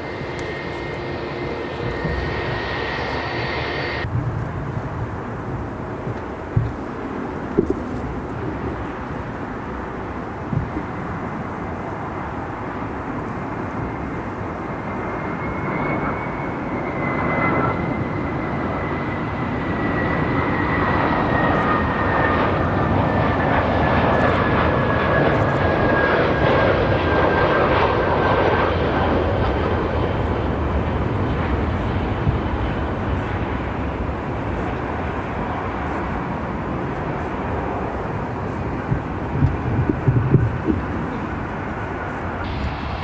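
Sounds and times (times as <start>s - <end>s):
high whine falling in pitch: 0.0s - 7.0s, 35.9s - 43.0s
jet engines passing: 0.0s - 43.0s.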